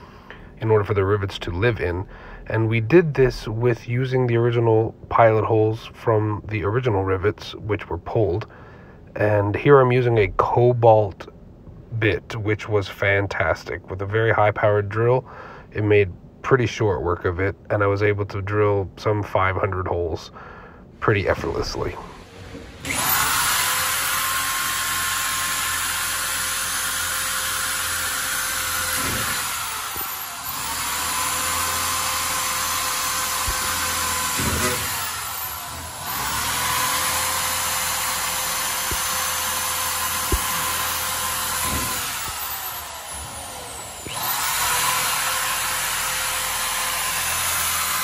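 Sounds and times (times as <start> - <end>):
electric drill drilling metal: 21.7 - 48.0.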